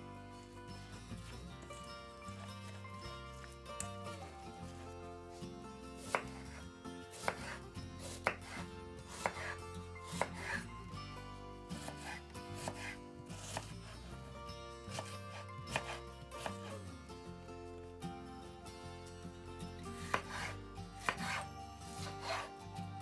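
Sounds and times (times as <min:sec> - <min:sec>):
knife chopping on wooden board: 0:06.0 - 0:10.6, 0:11.8 - 0:13.7, 0:14.9 - 0:16.8, 0:20.0 - 0:22.5.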